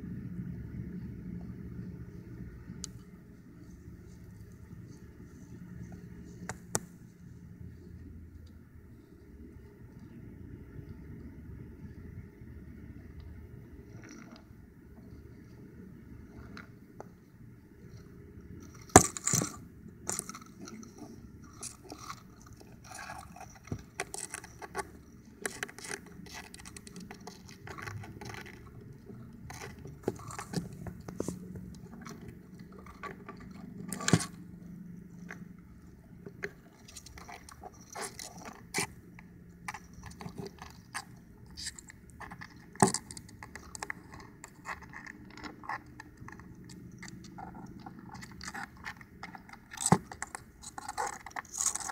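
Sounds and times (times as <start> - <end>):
crab claws clicking and scraping: 17.8 - 51.9.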